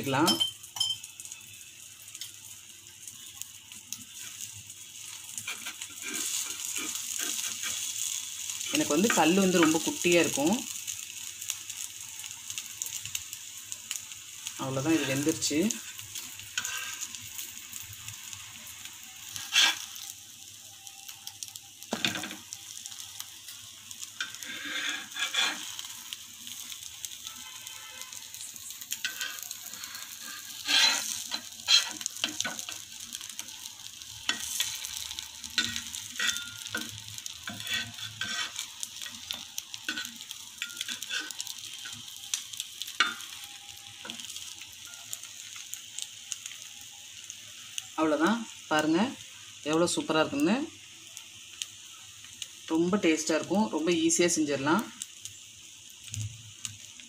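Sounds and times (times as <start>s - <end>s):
bread frying in oil: 0.0s - 57.0s
metal spatula scraping a pan: 5.3s - 10.1s, 14.6s - 17.6s, 19.2s - 20.1s, 24.2s - 33.5s, 34.2s - 42.2s, 42.8s - 44.5s.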